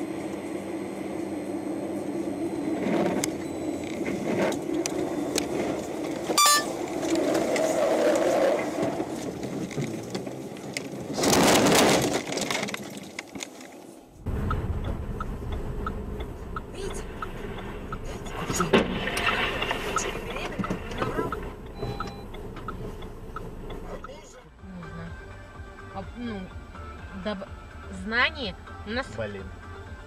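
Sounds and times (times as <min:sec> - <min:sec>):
car cabin road noise: 0:00.0 - 0:30.0
low traffic rumble: 0:00.0 - 0:30.0
car crunching into snow: 0:06.3 - 0:14.1.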